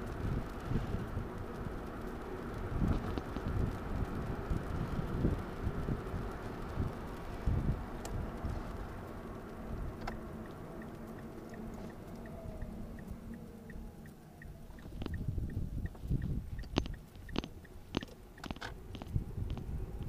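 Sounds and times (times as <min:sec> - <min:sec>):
faint high ticking: 0:00.0 - 0:20.0
wind buffeting: 0:00.0 - 0:20.0
sharp clicks: 0:06.5 - 0:20.0.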